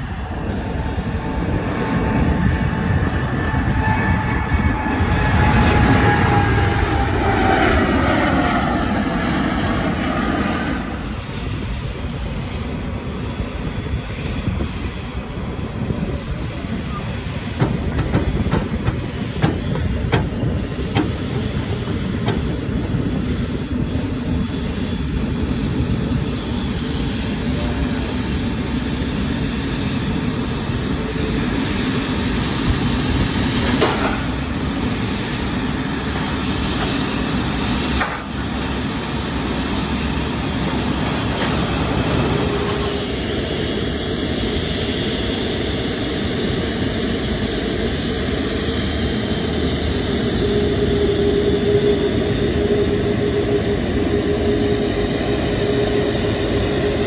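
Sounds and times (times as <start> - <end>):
jet airliner taxiing rumble: 0.0 - 57.0
baggage carts clanking and rattling: 17.6 - 23.5.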